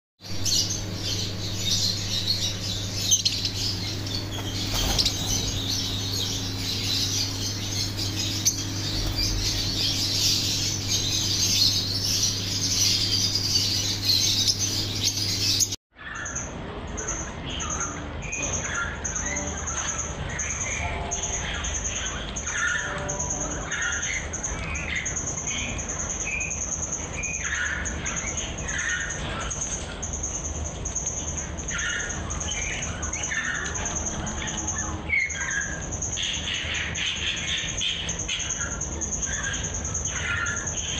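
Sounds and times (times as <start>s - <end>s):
steady low hum: 0.2s - 15.8s
lovebirds chattering and squawking: 0.2s - 40.9s.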